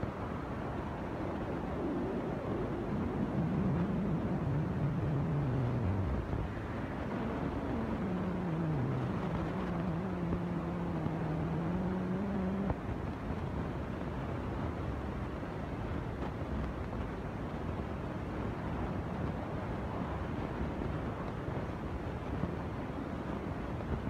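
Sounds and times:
engine running: 0:01.0 - 0:13.0.

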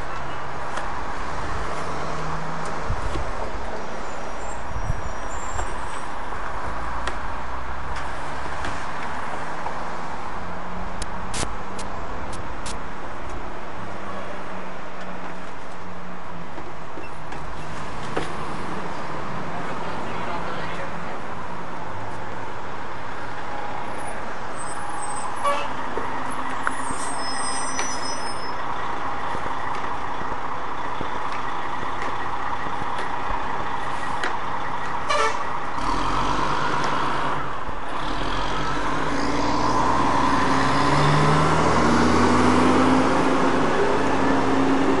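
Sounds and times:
street traffic: 0:00.0 - 0:45.0
fire engine engine revving: 0:28.6 - 0:45.0.

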